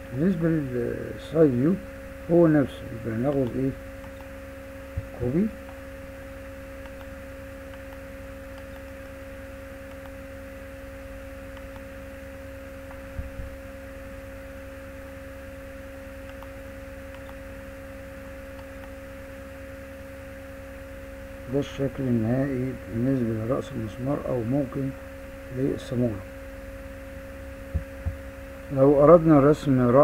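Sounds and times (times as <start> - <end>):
electrical hum: 0.0 - 30.0.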